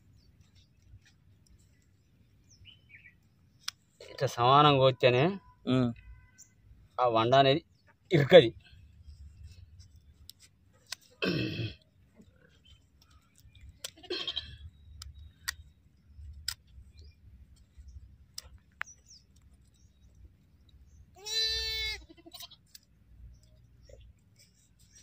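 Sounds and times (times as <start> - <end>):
sheep bleating: 14.0 - 14.6, 21.2 - 22.6
hoof shears snipping: 22.3 - 23.6.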